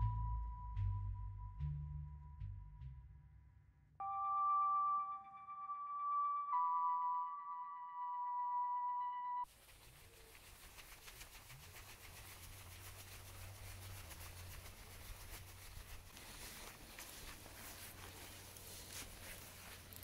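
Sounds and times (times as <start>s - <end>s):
footsteps through grass: 9.5s - 20.0s
campfire crackling: 14.3s - 20.0s.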